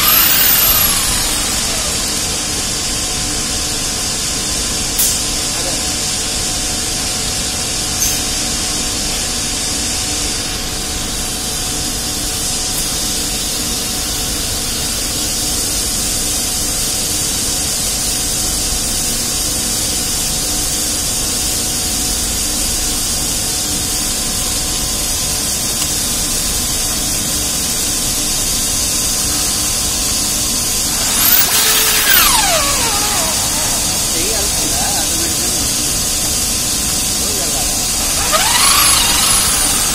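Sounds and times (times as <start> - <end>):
steady hiss: 26.6 - 39.9
faint hum: 29.4 - 39.9.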